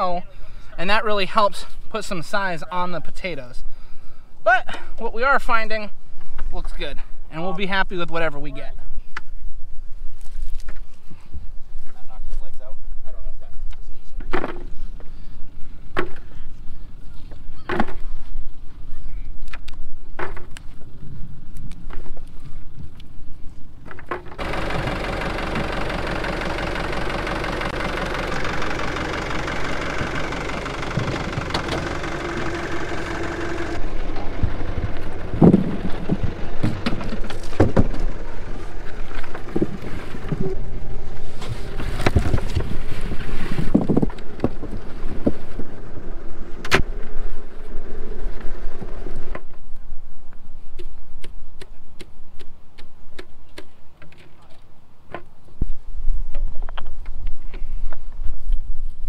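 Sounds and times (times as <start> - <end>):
tractor diesel engine running: 24.1 - 49.5.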